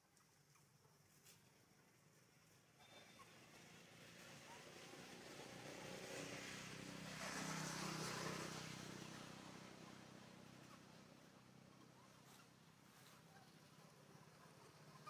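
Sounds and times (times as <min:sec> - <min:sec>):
vehicle passing by: 0:03.2 - 0:15.0.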